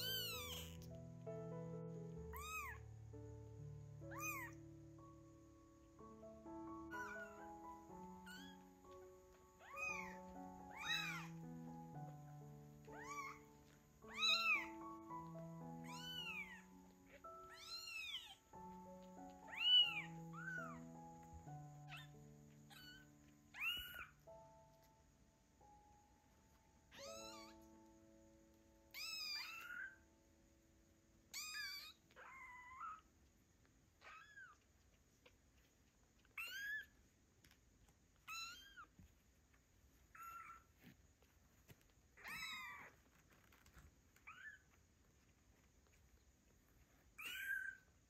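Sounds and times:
kittens meowing: 0.0s - 0.9s, 2.3s - 2.8s, 4.1s - 4.6s, 6.8s - 7.6s, 9.6s - 11.4s, 12.9s - 14.9s, 15.8s - 18.4s, 19.5s - 20.8s, 21.9s - 24.1s, 26.9s - 27.7s, 28.9s - 30.0s, 31.3s - 33.0s, 40.1s - 40.7s, 42.2s - 43.0s, 47.2s - 47.9s.

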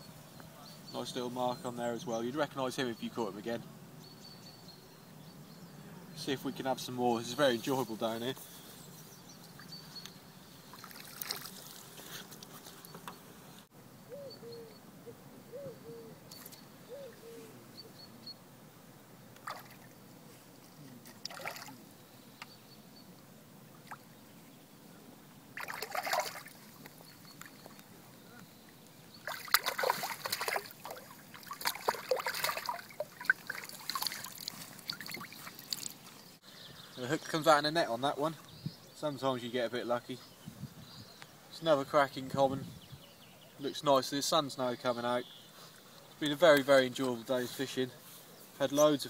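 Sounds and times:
fish splashing and thrashing: 10.7s - 11.8s, 21.2s - 21.7s, 25.6s - 26.8s, 29.2s - 36.1s.

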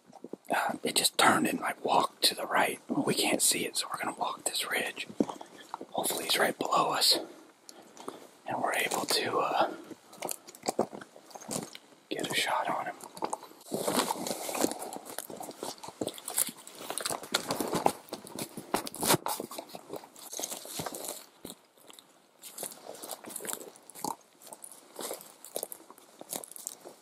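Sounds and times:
footsteps crunching through brush: 8.0s - 27.0s
twigs snapping: 13.0s - 26.9s.

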